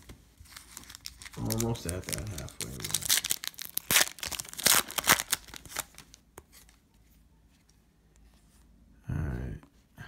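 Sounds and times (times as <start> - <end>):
foil wrapper tearing and crinkling: 0.5 - 6.2.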